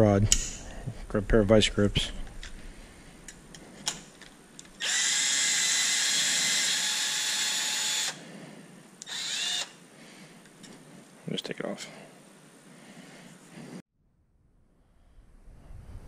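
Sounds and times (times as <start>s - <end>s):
cordless drill whining: 4.8s - 8.2s, 9.0s - 9.8s.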